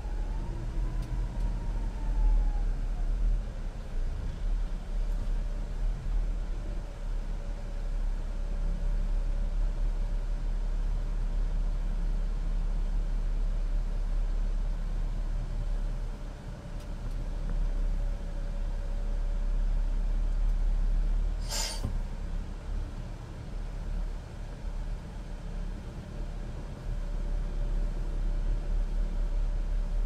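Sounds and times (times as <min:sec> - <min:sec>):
diesel truck engine rumble: 0:00.0 - 0:30.0
compressed air hiss: 0:21.4 - 0:21.9.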